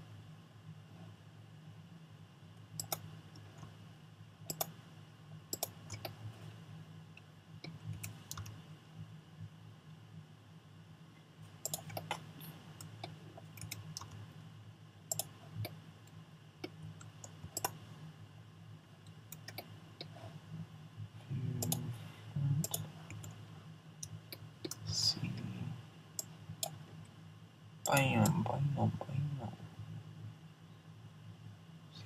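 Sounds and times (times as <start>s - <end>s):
steady low hum: 0.0s - 32.0s
computer mouse clicks: 2.8s - 3.7s, 4.5s - 4.8s, 5.5s - 6.2s, 7.6s - 8.6s, 11.6s - 14.2s, 15.1s - 17.8s, 19.3s - 20.2s, 21.6s - 21.9s, 22.6s - 23.4s, 26.2s - 26.9s.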